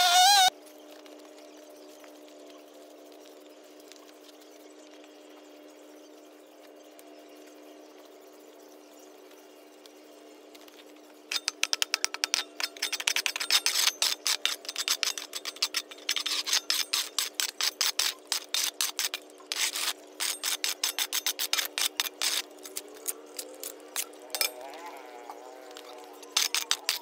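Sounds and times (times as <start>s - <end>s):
shovel scraping over concrete: 12.2s - 24.7s, 25.7s - 27.0s.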